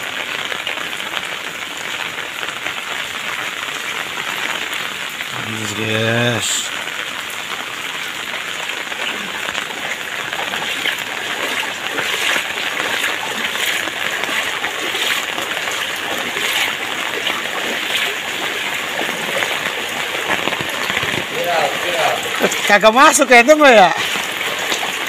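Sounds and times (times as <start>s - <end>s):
rain falling on water: 0.0s - 25.0s
footsteps wading through water: 8.6s - 25.0s.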